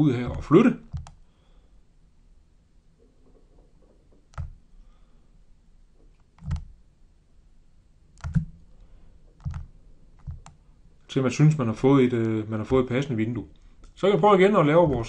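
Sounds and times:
faint room noise: 0.0 - 15.0
computer mouse clicks: 0.3 - 1.2, 4.3 - 4.6, 6.1 - 6.7, 8.2 - 10.6.

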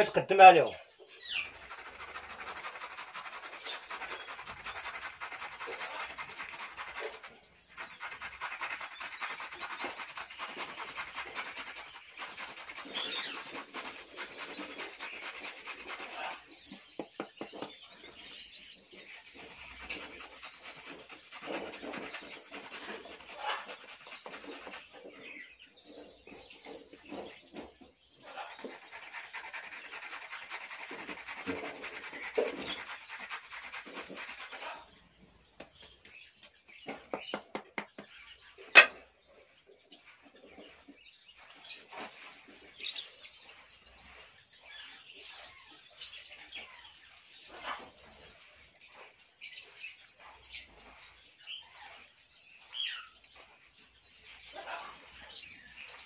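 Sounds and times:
small birds chirping: 0.0 - 56.0
carrot grating on metal grater: 1.4 - 16.4.

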